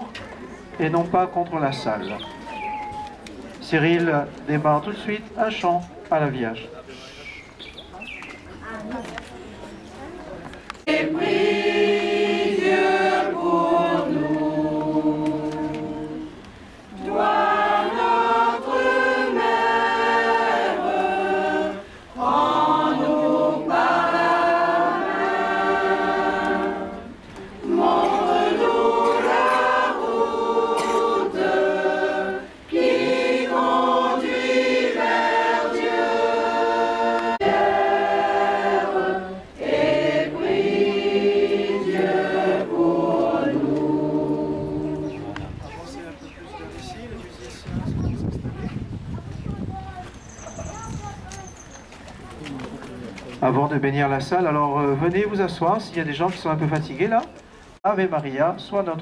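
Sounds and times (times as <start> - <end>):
choir singing a hymn: 10.8 - 45.6.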